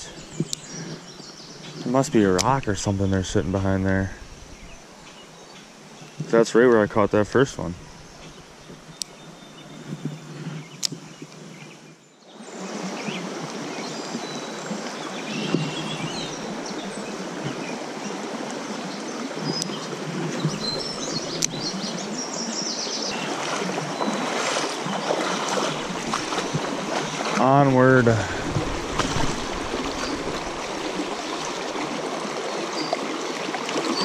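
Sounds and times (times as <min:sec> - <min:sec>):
stream rushing over riffle: 0:12.4 - 0:34.0.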